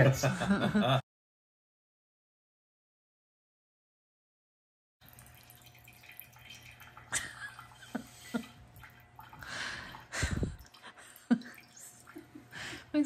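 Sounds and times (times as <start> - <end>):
liquid trickling into glass jar: 5.0 - 12.4.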